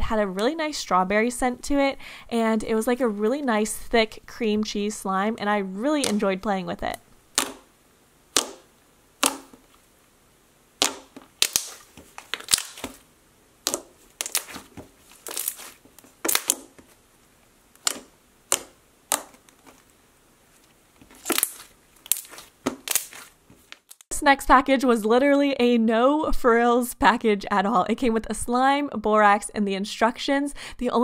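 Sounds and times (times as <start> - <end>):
slime squished by hand popping: 7.3 - 7.7, 8.3 - 9.7, 10.8 - 13.0, 13.6 - 16.8, 17.8 - 19.8, 21.1 - 24.0.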